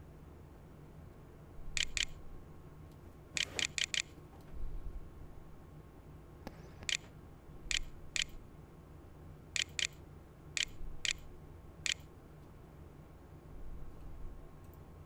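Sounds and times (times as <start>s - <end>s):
faint low hum: 0.0s - 15.0s
computer mouse button clicking: 1.8s - 2.2s, 3.4s - 4.1s, 6.8s - 7.1s, 7.7s - 8.4s, 9.6s - 10.0s, 10.6s - 11.3s, 11.9s - 12.1s.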